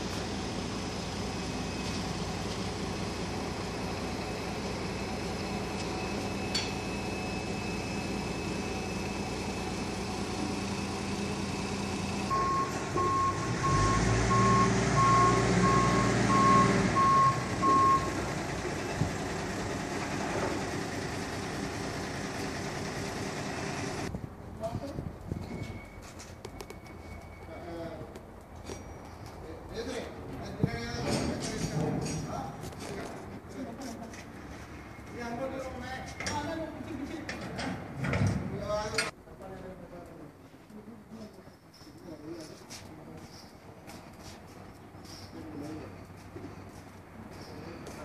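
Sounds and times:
diesel engine running: 0:00.0 - 0:24.1
reversing alarm beeping: 0:04.2 - 0:18.3, 0:25.4 - 0:27.7.

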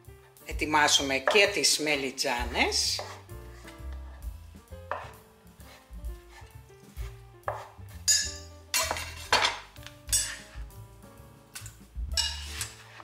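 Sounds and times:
background music: 0:00.0 - 0:13.0
knife chopping on wooden board: 0:02.8 - 0:03.8, 0:04.8 - 0:08.1.

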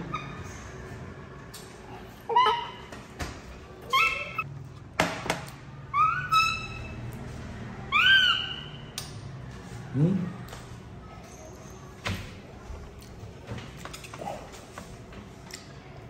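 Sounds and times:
baby monkey squeaking: 0:05.9 - 0:07.0, 0:07.9 - 0:08.8.

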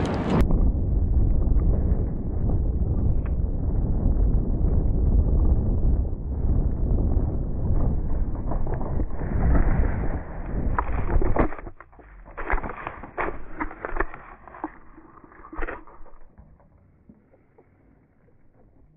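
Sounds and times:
bicycle rolling on dirt: 0:00.0 - 0:18.9
wind rumble on microphone: 0:00.0 - 0:18.9
bicycle crash: 0:08.5 - 0:16.6.

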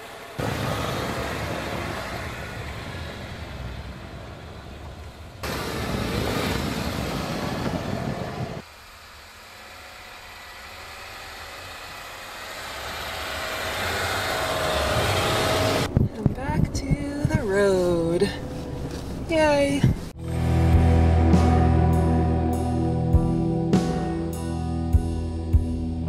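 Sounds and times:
tyres pushing through snow: 0:00.0 - 0:20.2
car engine under load: 0:00.0 - 0:22.6.

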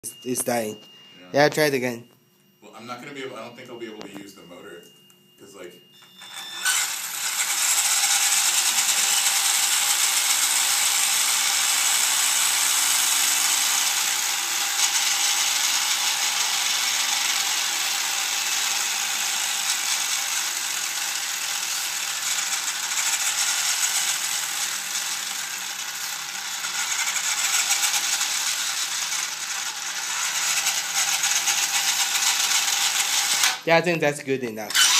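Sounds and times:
toy truck gears whirring: 0:06.2 - 0:33.7, 0:34.6 - 0:34.9.

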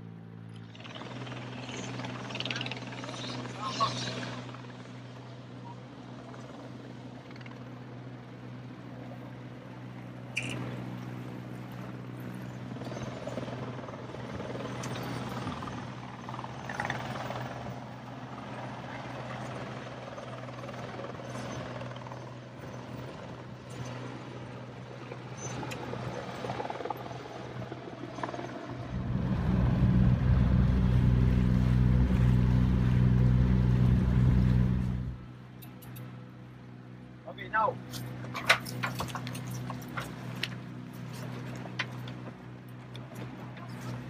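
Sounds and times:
boat engine running: 0:22.8 - 0:35.9.

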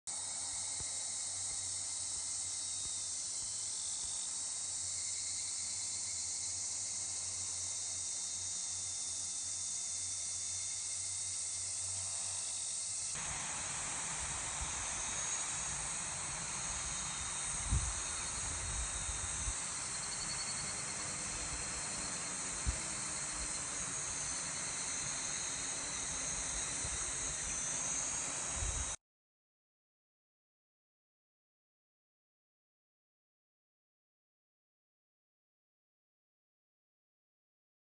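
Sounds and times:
high-pitched insect chorus: 0:00.1 - 0:29.0
low wind rumble on microphone: 0:17.3 - 0:19.6.

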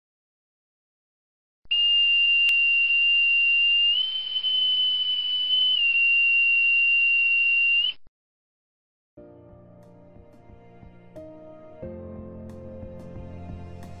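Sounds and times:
shrill pipe whistle: 0:01.7 - 0:08.0.

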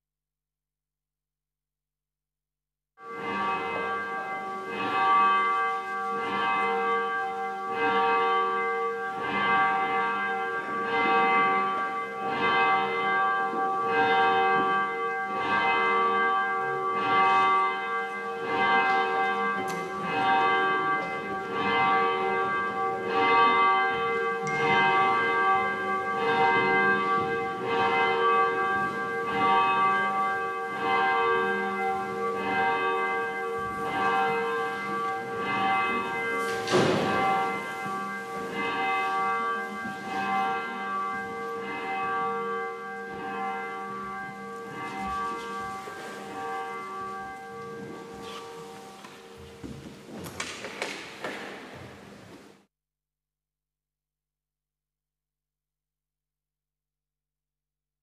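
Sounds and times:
church bell ringing: 0:03.0 - 0:52.7.

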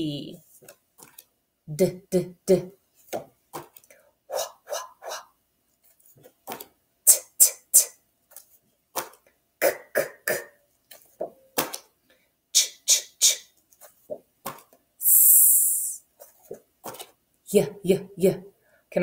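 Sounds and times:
woman saying letter sounds: 0:00.0 - 0:00.4, 0:01.7 - 0:02.8, 0:17.5 - 0:19.0.

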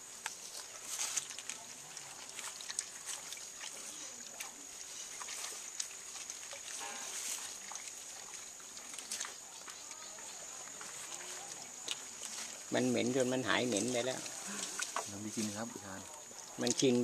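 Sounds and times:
hands sloshing water: 0:00.0 - 0:17.0.

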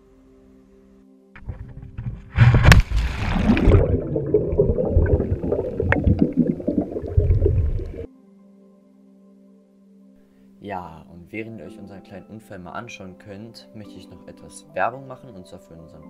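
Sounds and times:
splash into water: 0:02.3 - 0:06.8
muffled underwater bubbling: 0:02.3 - 0:08.1.

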